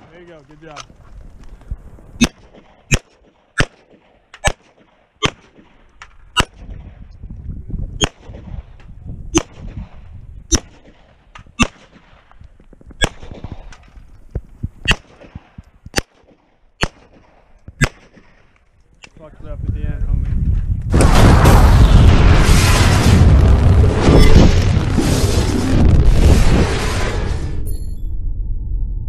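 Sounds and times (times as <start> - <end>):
pistol firing single shots: 2.2 - 5.8, 14.9 - 18.5.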